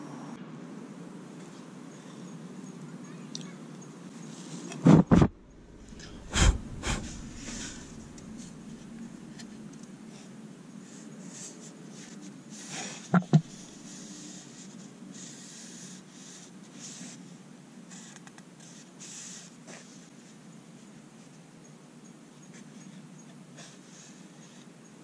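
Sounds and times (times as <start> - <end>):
gloved hands rubbing wooden board: 6.0 - 8.9.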